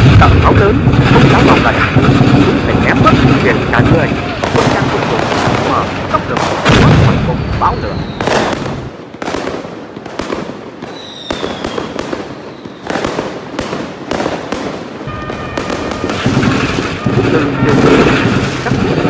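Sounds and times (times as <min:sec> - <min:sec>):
gunshots: 0:00.0 - 0:19.0
falling whistle: 0:07.4 - 0:08.3, 0:10.9 - 0:11.9.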